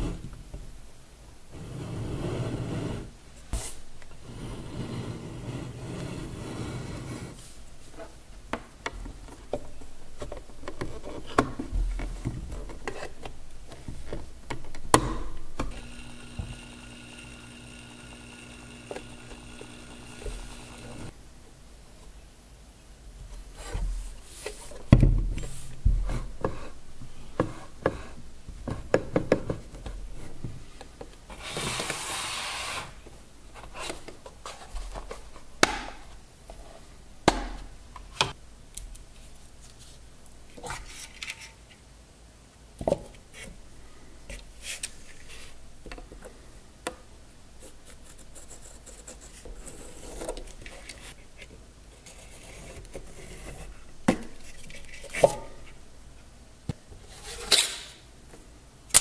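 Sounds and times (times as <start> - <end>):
rustling scrape: 1.5 - 8.2, 23.4 - 26.8, 31.3 - 33.0, 57.0 - 57.8.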